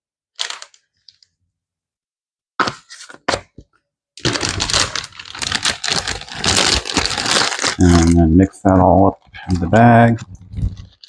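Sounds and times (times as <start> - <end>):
plastic bag crinkling: 0.4 - 1.2, 4.2 - 11.0.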